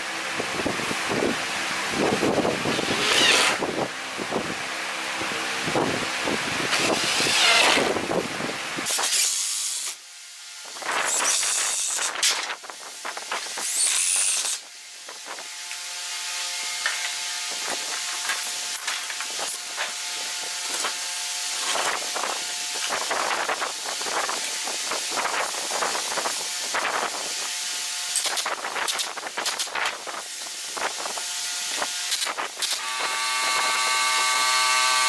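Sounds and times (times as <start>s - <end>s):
impact driver driving screws: 2.7s - 3.6s, 6.7s - 8.0s.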